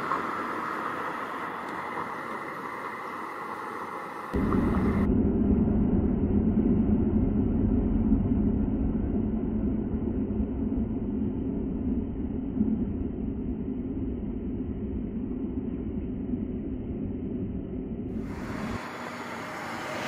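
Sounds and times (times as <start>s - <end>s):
slowed low muffled rumble: 4.3s - 20.0s.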